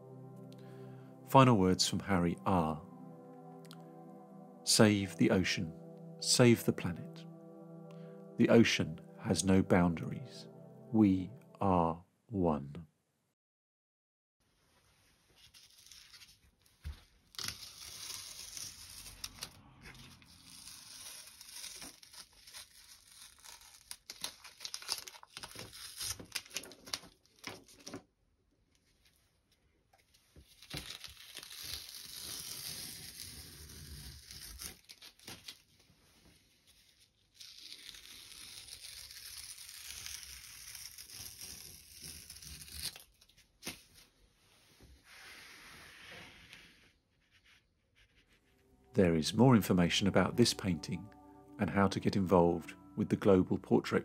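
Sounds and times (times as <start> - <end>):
masking tape peeling off paper: 15.5 - 16.4, 17.2 - 28.0, 30.4 - 35.8, 36.9 - 43.8.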